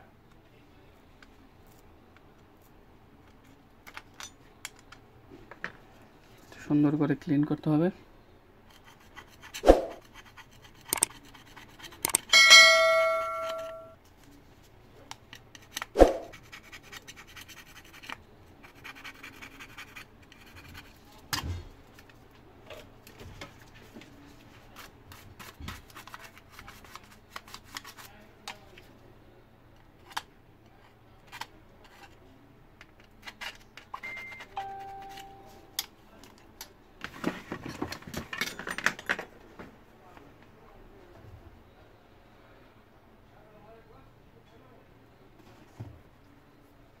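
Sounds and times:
metal tools clicking and tapping: 3.4 - 5.0, 10.8 - 11.2, 11.9 - 14.0, 32.8 - 36.4
bright ringing ding: 12.3 - 14.0, 34.0 - 35.8.

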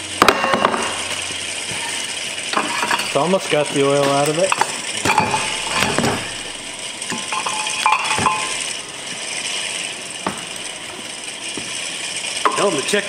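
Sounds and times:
metallic ring: 4.0 - 8.7
metal knocks and clinks: 7.1 - 8.6.

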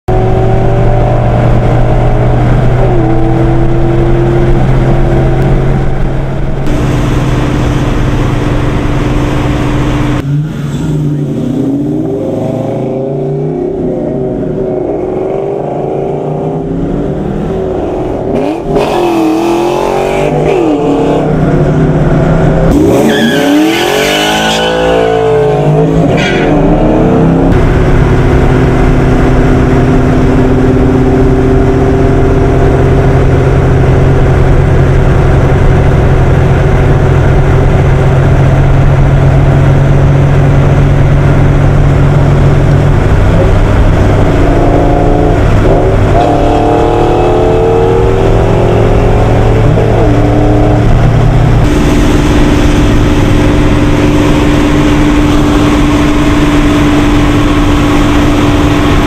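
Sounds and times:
car engine droning and revving: 0.0 - 59.0.

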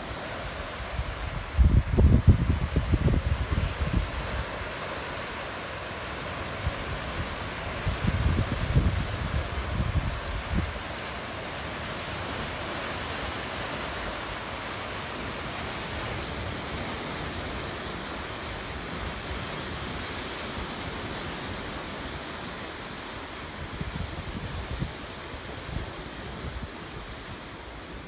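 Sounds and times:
wind buffeting microphone: 0.7 - 4.6, 6.6 - 10.9, 23.6 - 27.2.

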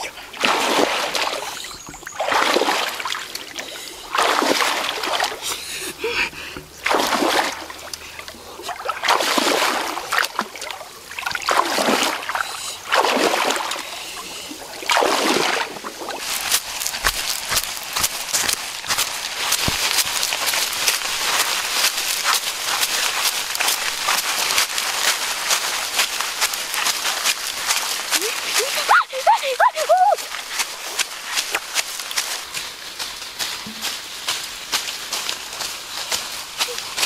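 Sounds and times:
stick splashing in muddy water: 0.3 - 5.6, 6.3 - 13.9, 14.7 - 29.0, 30.2 - 32.6
bare feet crunching dry leaves: 15.0 - 37.0.

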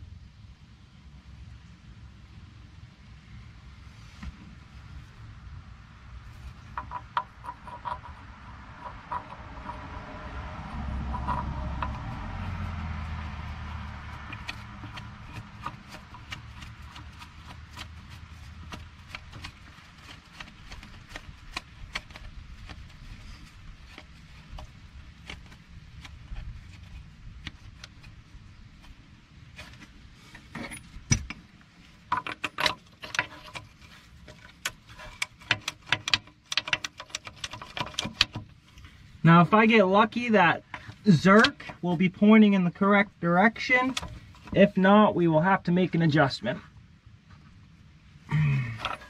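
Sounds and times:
low rumble: 5.0 - 19.6
metallic clicks and scraping: 6.2 - 39.2, 40.2 - 42.0, 43.5 - 44.7, 48.6 - 49.0.

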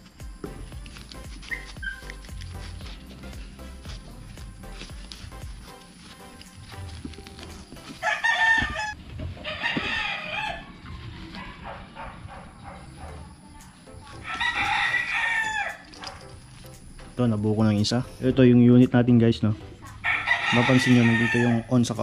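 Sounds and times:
rubber hose rustling and clicking: 0.0 - 8.9, 15.7 - 16.8.

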